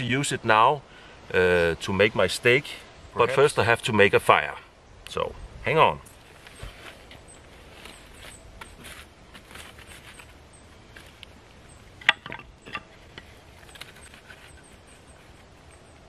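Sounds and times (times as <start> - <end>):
scraping and rustling of charred wood: 6.1 - 16.0.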